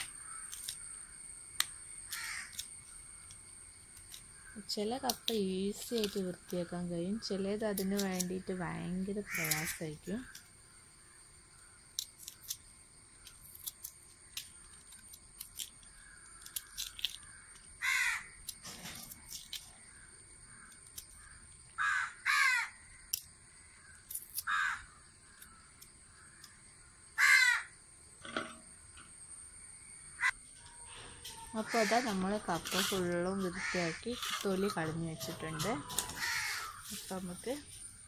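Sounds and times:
crows cawing: 0.2s - 1.1s, 2.1s - 2.6s, 9.3s - 9.8s, 17.2s - 18.4s, 20.5s - 23.0s, 23.6s - 25.6s, 27.2s - 27.8s, 30.2s - 32.2s, 33.5s - 34.1s, 34.7s - 37.0s
knife peeling clicks and scrapes: 0.4s - 0.8s, 5.0s - 6.6s, 7.7s - 8.4s, 9.4s - 10.5s, 12.0s - 12.6s, 13.2s - 17.7s, 18.4s - 19.7s.

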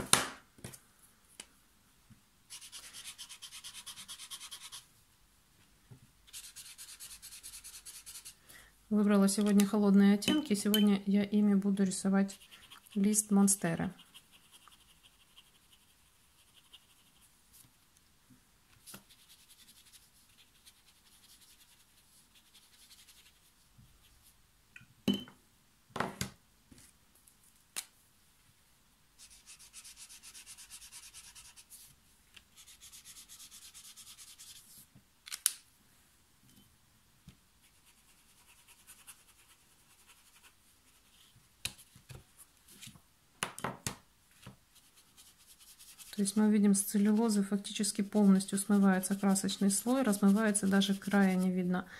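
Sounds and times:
brush pen rasping on paper: 2.5s - 4.8s, 12.2s - 17.3s, 29.2s - 31.9s, 44.8s - 51.5s.

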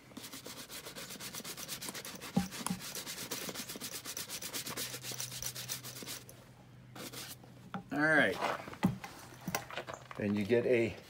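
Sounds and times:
brush scrubbing leather: 0.0s - 6.3s.

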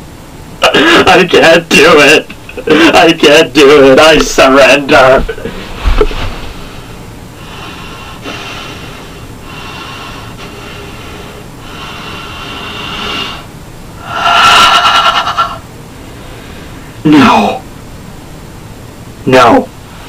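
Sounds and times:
man breathing heavily: 5.5s - 17.0s.

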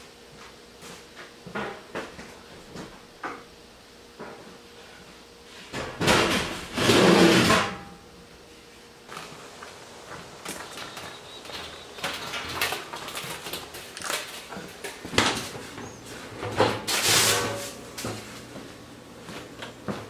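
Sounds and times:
scraping clatters: 10.3s - 15.7s.

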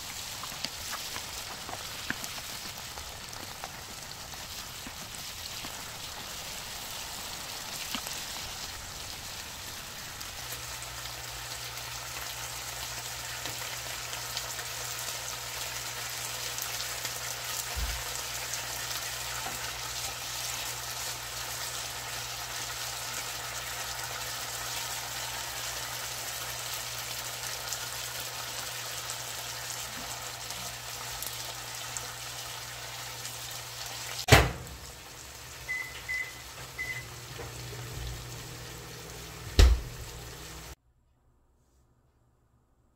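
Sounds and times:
wooden spatula stirring: 0.0s - 6.4s
food sizzling in a frying pan: 0.0s - 40.8s.

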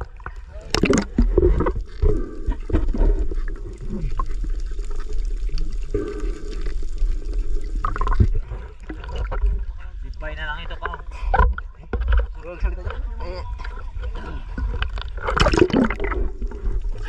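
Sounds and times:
muffled underwater sloshing: 0.0s - 17.0s.

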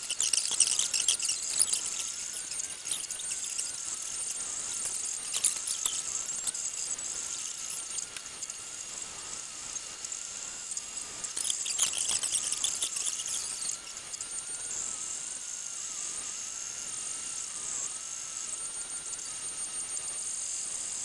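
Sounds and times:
high chirping rattles: 0.0s - 8.6s, 11.0s - 14.1s
printer stepper motors whining: 0.0s - 15.1s.

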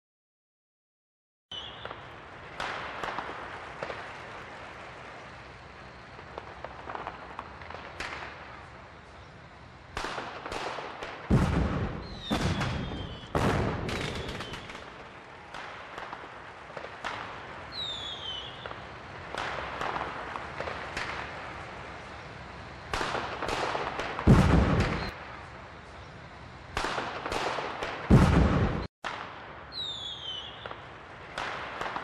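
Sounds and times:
short falling whistles: 1.5s - 2.0s, 12.0s - 13.4s, 14.0s - 14.8s, 17.7s - 18.8s, 29.7s - 30.8s
fireworks booming and cracking: 1.5s - 32.0s.

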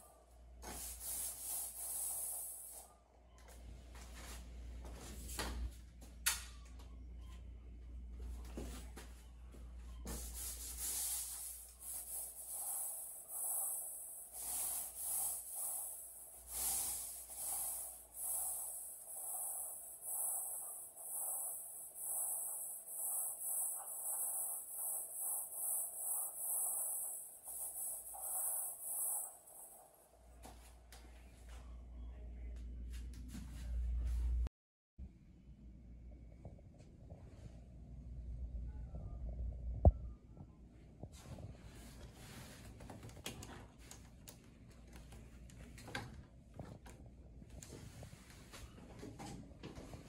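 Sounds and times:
paint roller swishing on wall: 0.6s - 2.9s, 10.0s - 30.7s, 41.2s - 46.0s, 47.5s - 50.0s.

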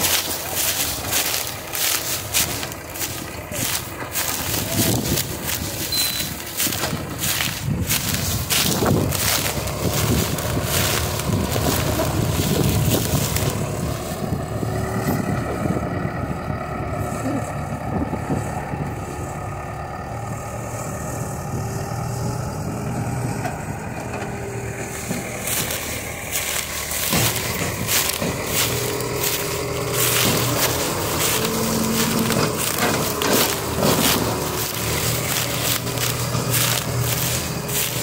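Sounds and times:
diesel engine running: 0.0s - 38.0s
crackling noise: 24.5s - 38.0s.

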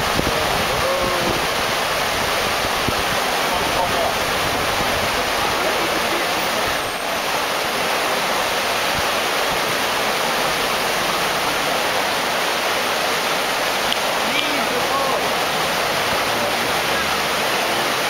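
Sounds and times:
water rushing over stones: 0.0s - 18.0s.

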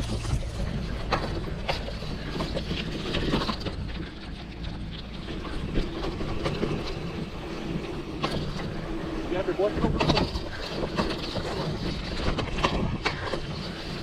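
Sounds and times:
bike rattles and clicks: 0.0s - 14.0s
bike tyres rumbling on dirt: 0.0s - 14.0s.

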